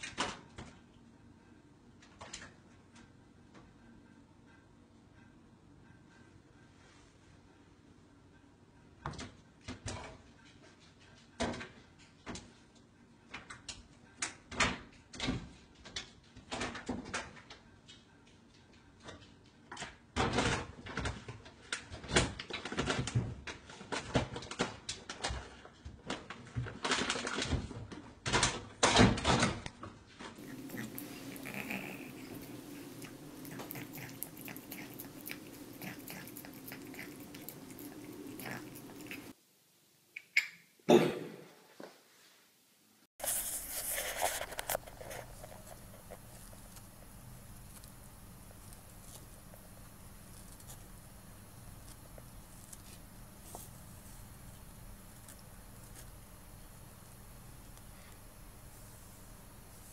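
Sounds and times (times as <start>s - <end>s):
cat claws scraping wood: 30.4s - 39.3s, 43.2s - 59.9s
faint steady hum: 30.4s - 41.2s, 42.2s - 59.9s.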